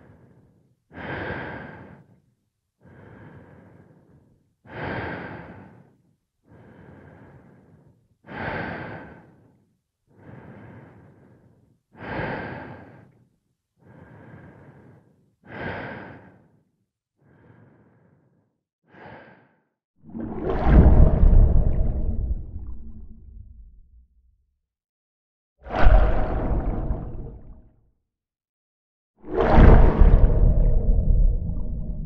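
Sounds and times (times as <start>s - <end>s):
person breathing inside helmet: 0.0s - 2.2s, 2.8s - 19.6s.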